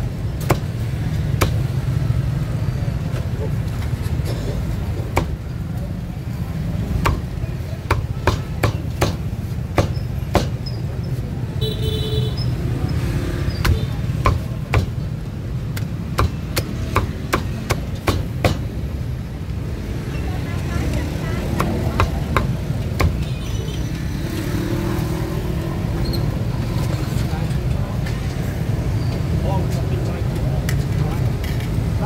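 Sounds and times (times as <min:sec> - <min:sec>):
street traffic rumble: 0:00.0 - 0:32.0
cleaver chopping meat: 0:05.1 - 0:05.4, 0:06.9 - 0:10.6, 0:13.6 - 0:15.0, 0:15.8 - 0:18.8, 0:21.5 - 0:23.2.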